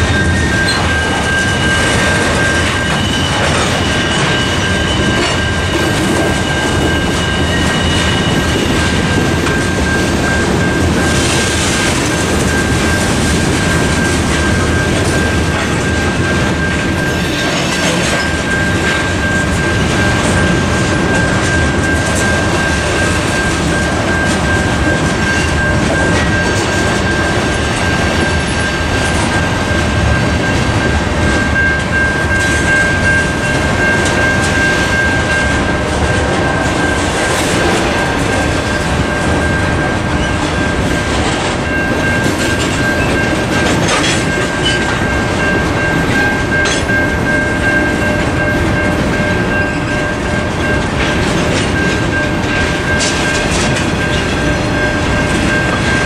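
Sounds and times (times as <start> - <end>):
high wheel squeal: 0.0 - 8.9
crossing bell ringing: 0.0 - 56.0
freight train wheels rumbling on rail: 0.0 - 56.0.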